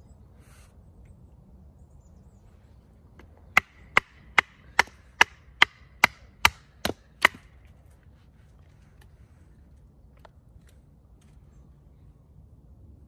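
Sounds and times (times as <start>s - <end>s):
sharp strikes on wood: 3.5s - 7.5s.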